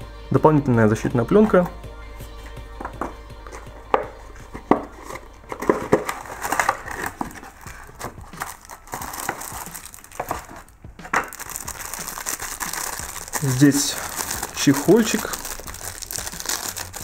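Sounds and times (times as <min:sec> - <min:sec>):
cardboard being handled: 0:03.5 - 0:17.0
plastic wrapping crinkling: 0:03.5 - 0:17.0.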